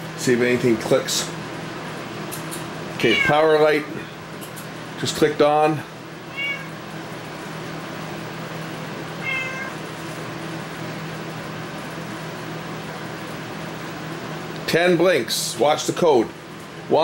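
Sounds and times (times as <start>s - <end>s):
steady low hum: 0.0s - 17.0s
cat meowing: 3.0s - 3.5s, 6.3s - 6.8s, 9.2s - 9.8s.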